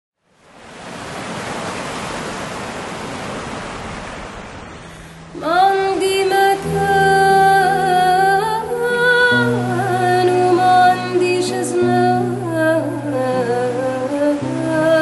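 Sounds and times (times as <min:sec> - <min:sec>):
surf washing over rocks: 0:00.4 - 0:15.0
music with long held note: 0:05.2 - 0:15.0.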